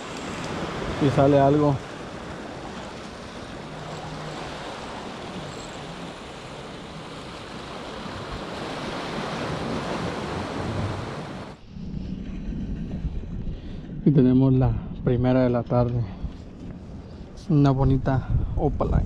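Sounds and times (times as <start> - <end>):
surf washing against boulders: 0.0 - 11.6
wind gusting on microphone: 0.0 - 19.0.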